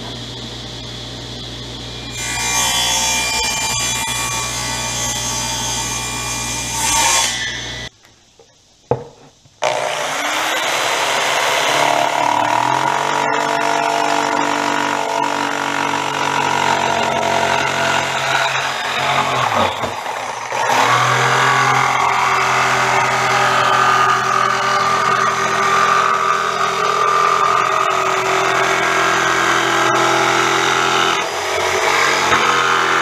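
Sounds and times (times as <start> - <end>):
table saw cutting plywood: 1.6 - 7.9, 9.6 - 33.0
power tool running: 9.6 - 33.0.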